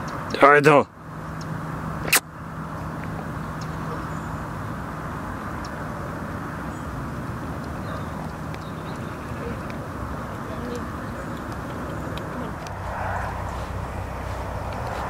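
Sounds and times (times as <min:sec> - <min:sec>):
distant road traffic rumble: 0:00.0 - 0:15.0
low hum: 0:00.9 - 0:15.0
sharp click: 0:01.4 - 0:02.3.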